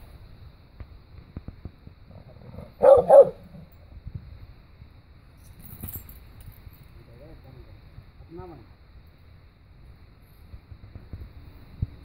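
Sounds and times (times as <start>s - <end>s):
dog barking: 2.6s - 3.6s.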